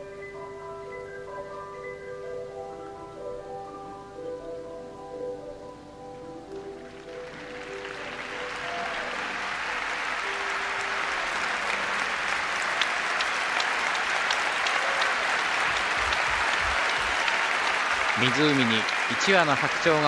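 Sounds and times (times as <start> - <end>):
held music notes: 0.0 - 20.0
crowd applauding: 6.7 - 20.0.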